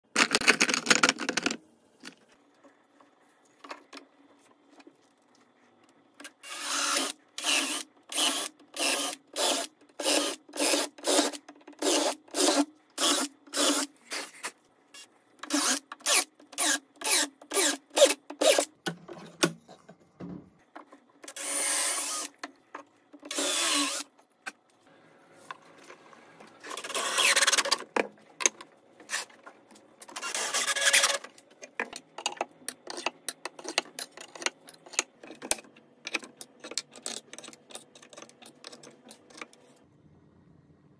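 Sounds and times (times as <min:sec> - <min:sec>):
cutting or sanding noise: 0:26.6 - 0:27.7, 0:30.1 - 0:31.2.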